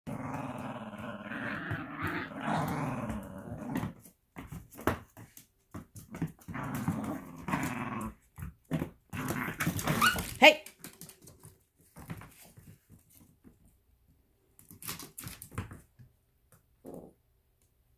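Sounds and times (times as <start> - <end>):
dog growling in play: 0.1 - 4.1, 6.1 - 10.2.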